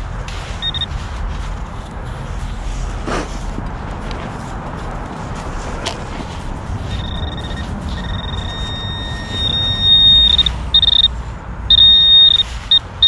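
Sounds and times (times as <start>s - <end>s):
metal detector electronic tone: 0.6s - 0.9s, 6.8s - 13.0s.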